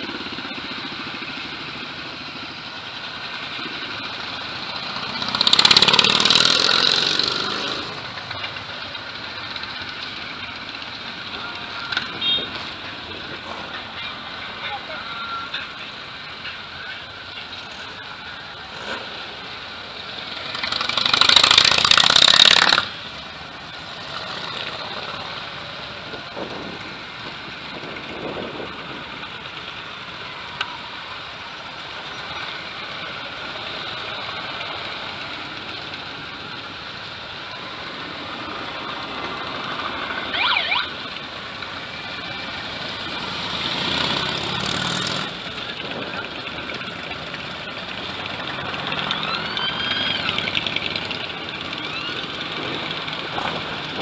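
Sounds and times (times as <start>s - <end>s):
motorcycles riding past: 0.0s - 11.7s, 18.9s - 26.7s, 40.9s - 54.0s.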